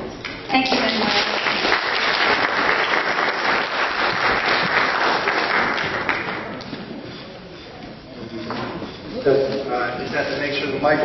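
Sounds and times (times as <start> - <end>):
audience applauding: 0.6 - 6.6.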